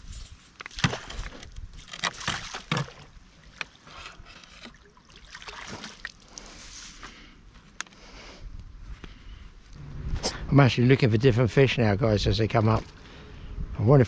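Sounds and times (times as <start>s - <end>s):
water splashing and sloshing: 0.0s - 7.0s.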